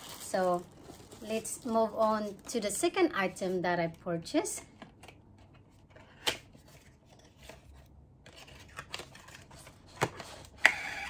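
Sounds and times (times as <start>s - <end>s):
packaging rustling: 0.0s - 2.7s.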